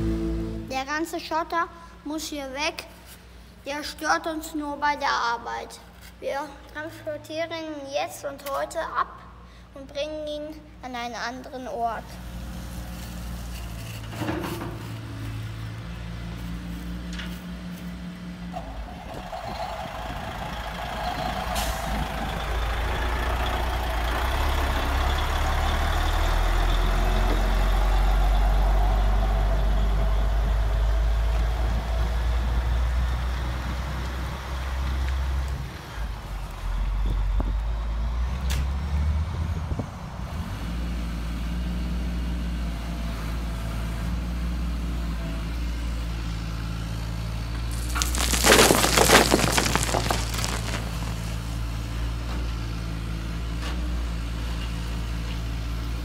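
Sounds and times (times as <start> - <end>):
gravel rattling into plastic trailer: 47.7 - 51.6.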